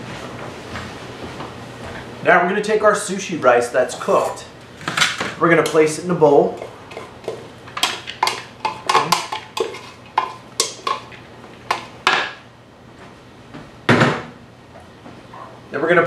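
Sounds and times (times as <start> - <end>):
wooden spoon scraping a steel pot: 8.2 - 11.0.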